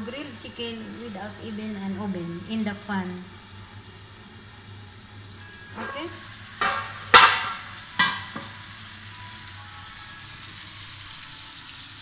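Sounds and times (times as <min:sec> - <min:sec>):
chicken sizzling in pan: 0:00.0 - 0:12.0
metal lid clanking on pan: 0:05.8 - 0:08.6.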